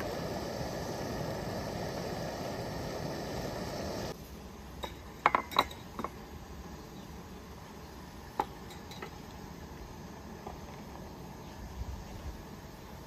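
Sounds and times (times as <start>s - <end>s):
faint background hiss: 0.0s - 13.0s
bowls and plates clinking: 4.8s - 6.1s.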